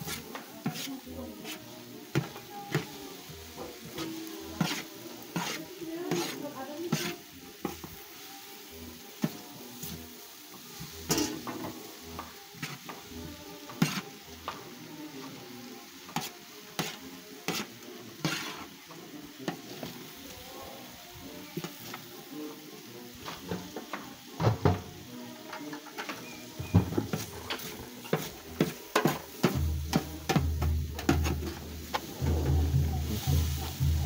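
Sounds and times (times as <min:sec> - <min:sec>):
metal utensil scraping griddle: 0:00.0 - 0:08.0, 0:09.2 - 0:15.3, 0:16.0 - 0:20.2, 0:25.3 - 0:34.0
vegetables sizzling on griddle: 0:00.0 - 0:34.0.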